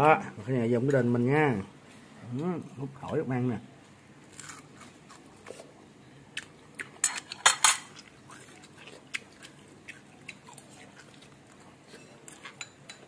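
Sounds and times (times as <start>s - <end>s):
spoon clinking on ceramic bowl: 12.0s - 13.0s.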